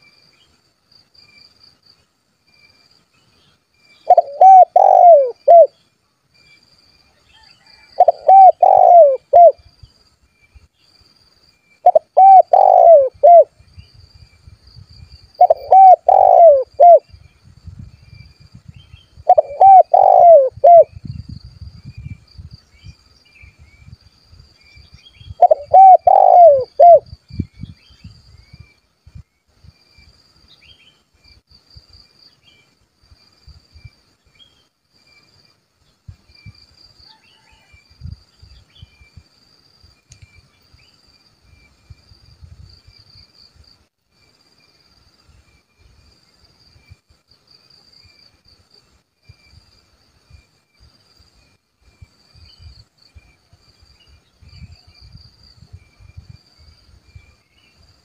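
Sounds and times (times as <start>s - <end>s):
high insect trill: 0.0s - 58.0s
dove cooing: 4.1s - 5.7s, 7.9s - 9.6s, 11.8s - 13.5s, 15.4s - 17.0s, 19.2s - 20.9s, 25.4s - 27.0s.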